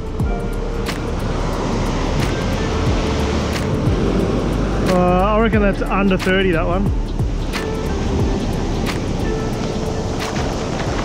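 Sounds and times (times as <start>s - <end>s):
light instrumental music: 0.0s - 11.0s
surf breaking on beach: 7.5s - 11.0s.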